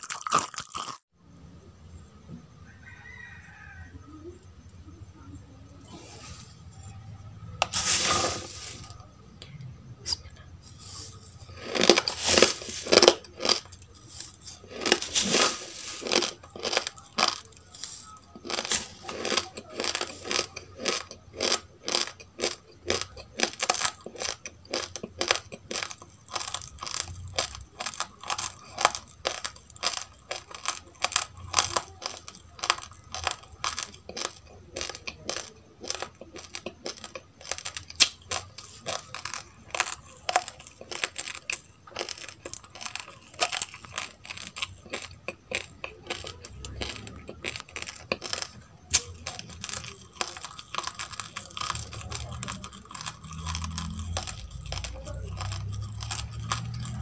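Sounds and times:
chewing crunchy rice: 0.0 - 1.1, 5.7 - 9.3, 10.1 - 57.0
dry grains rustling: 7.6 - 9.2, 10.6 - 21.0.

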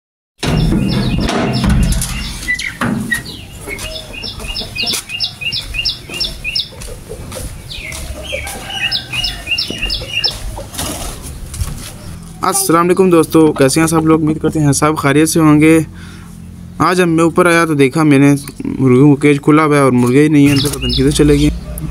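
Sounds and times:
knocks: 0.4 - 3.4
small bird chirping: 0.4 - 10.6, 20.4 - 21.6.

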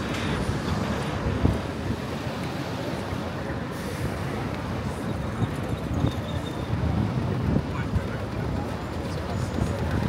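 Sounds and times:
street traffic rumble: 0.0 - 10.0.

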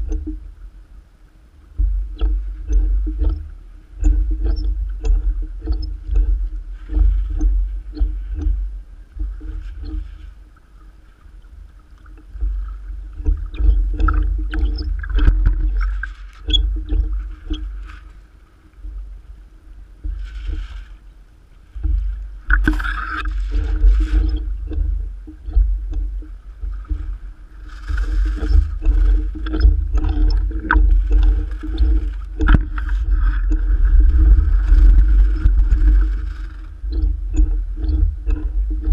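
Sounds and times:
small waves splashing: 0.0 - 38.9
wind buffeting microphone: 12.2 - 17.9, 21.7 - 38.9.

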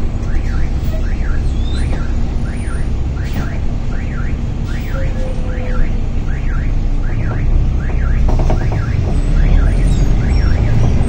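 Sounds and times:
bus engine rumble: 0.0 - 11.0
warbling electronic alarm tone: 3.9 - 10.8.

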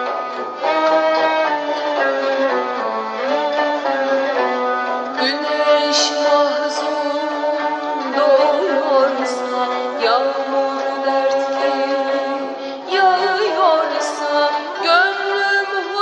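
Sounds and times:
instrumental accompaniment: 0.0 - 16.0
woman singing: 5.2 - 16.0.

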